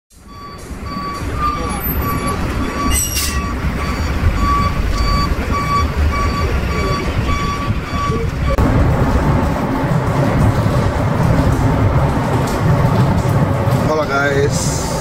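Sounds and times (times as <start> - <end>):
low engine rumble: 0.1 - 15.0
reversing alarm beeping: 0.2 - 8.6.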